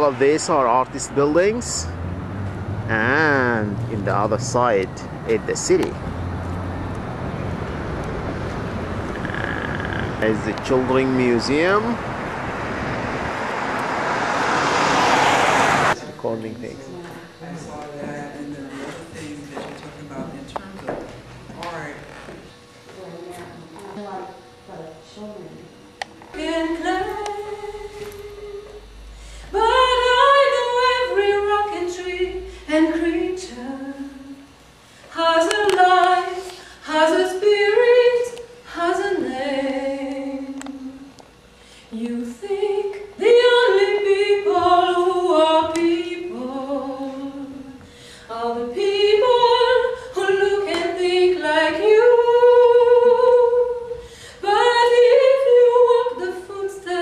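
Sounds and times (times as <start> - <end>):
person singing unaccompanied: 26.3 - 28.8.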